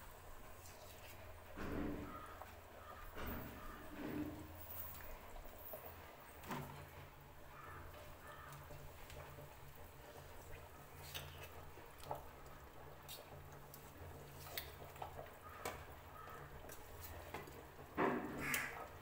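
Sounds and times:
curry bubbling in a pot: 0.0 - 19.0.

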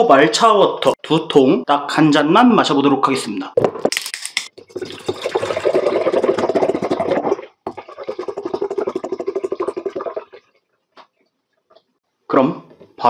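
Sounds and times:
liquid glugging from a bottle: 4.6 - 10.6.

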